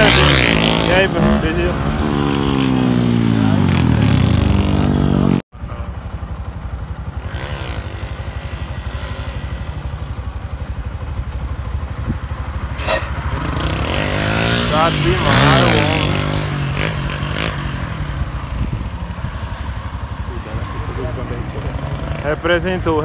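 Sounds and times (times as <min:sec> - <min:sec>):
small motorcycle engine: 0:00.0 - 0:23.0
motorcycle idling: 0:00.9 - 0:23.0
engine revving up: 0:12.8 - 0:18.3.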